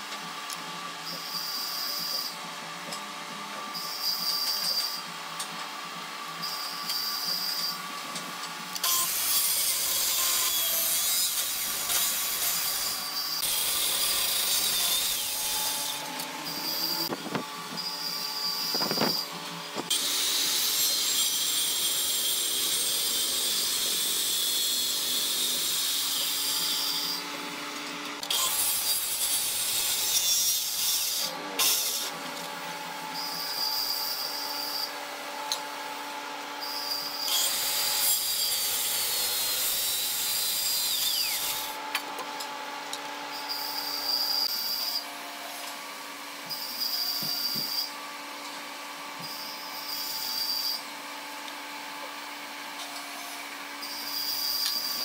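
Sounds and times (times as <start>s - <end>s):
circular saw cutting wood: 0.0s - 55.0s
saw motor running free: 8.8s - 45.8s, 52.4s - 55.0s.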